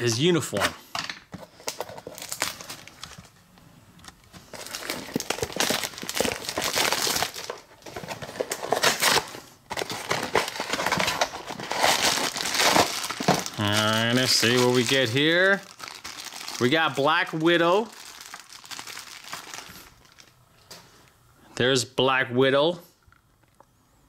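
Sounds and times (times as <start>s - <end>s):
packaging crinkling and tearing: 1.5s - 3.4s, 4.0s - 20.4s.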